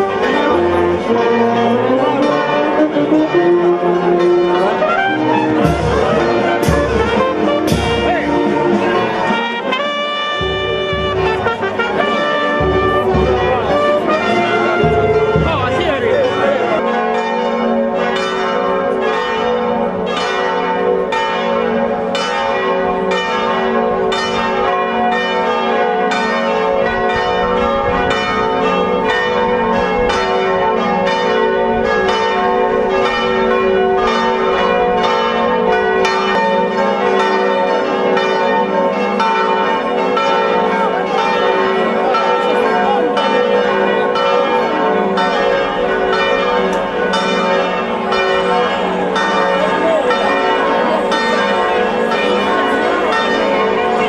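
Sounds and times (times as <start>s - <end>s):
church bells pealing: 0.0s - 54.0s.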